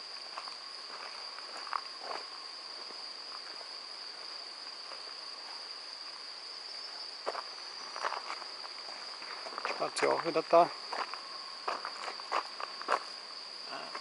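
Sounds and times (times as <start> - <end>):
crickets trilling: 0.0 - 14.0
footsteps on gravel: 0.3 - 5.1, 7.2 - 13.2.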